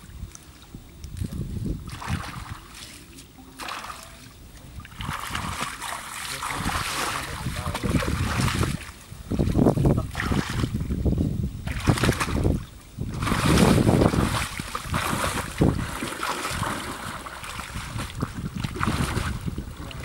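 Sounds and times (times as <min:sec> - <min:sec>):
people wading through water: 0:01.8 - 0:11.0, 0:11.6 - 0:20.0
hands slapping water: 0:04.8 - 0:08.8, 0:11.7 - 0:20.0.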